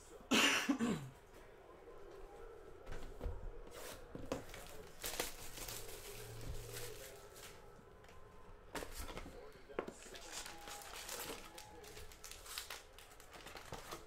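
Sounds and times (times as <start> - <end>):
cards rustling: 3.8 - 14.0.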